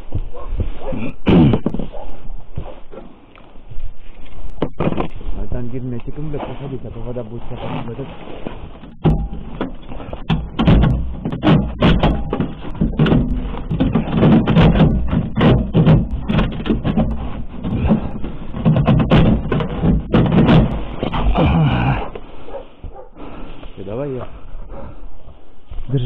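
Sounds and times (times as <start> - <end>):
knocks and clattering: 8.5 - 22.3.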